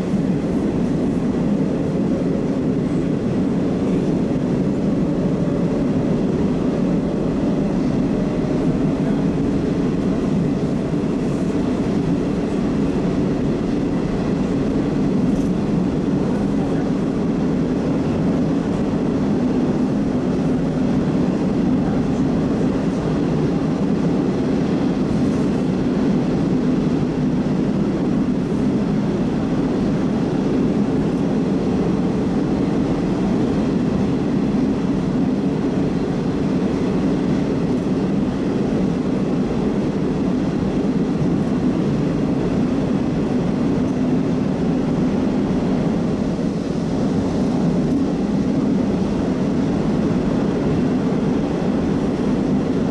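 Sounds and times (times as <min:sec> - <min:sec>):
train wheels rumbling on rails: 0:00.0 - 0:52.9.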